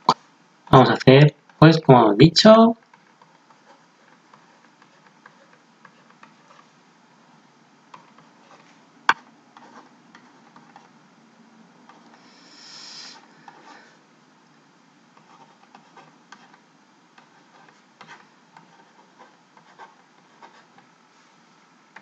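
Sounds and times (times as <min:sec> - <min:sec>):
stylus tapping and scratching: 0:02.8 - 0:06.8, 0:07.9 - 0:11.0, 0:15.2 - 0:20.9
soft rustling: 0:17.3 - 0:21.6.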